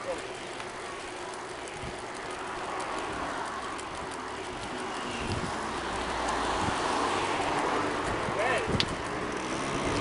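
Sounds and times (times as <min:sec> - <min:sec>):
passing traffic: 0:00.0 - 0:10.0
road noise while rolling: 0:00.0 - 0:10.0
wind on microphone: 0:05.1 - 0:05.7.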